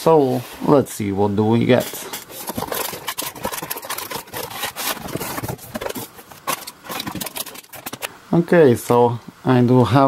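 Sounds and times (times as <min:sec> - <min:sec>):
cardboard rustling and scraping: 0:00.0 - 0:08.1
plastic packaging crinkling: 0:01.8 - 0:08.1.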